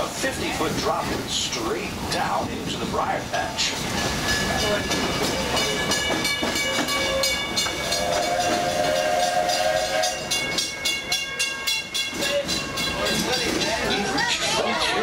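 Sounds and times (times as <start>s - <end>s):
steam train running: 0.0s - 15.0s
steam whistle blast: 7.1s - 10.4s.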